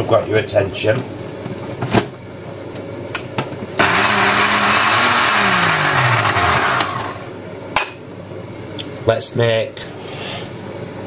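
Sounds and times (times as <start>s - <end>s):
blender motor running: 3.8s - 7.4s.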